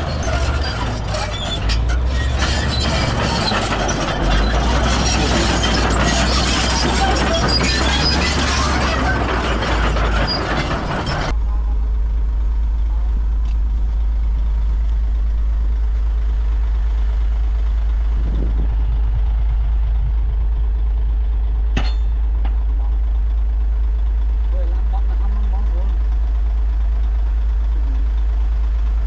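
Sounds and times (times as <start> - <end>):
clatter of rock and machinery: 0.0 - 11.4, 21.7 - 22.7
diesel engine rumbling: 0.0 - 29.0.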